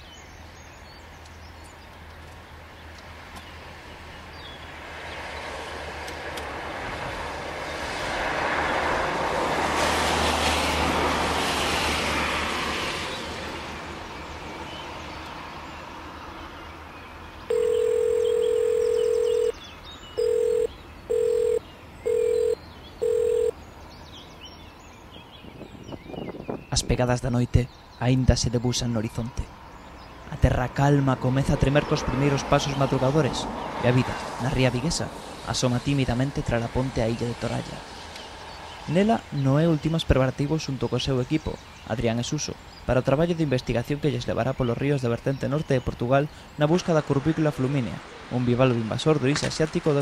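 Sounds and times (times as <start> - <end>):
electronic beeps: 17.5 - 19.6, 20.2 - 23.5.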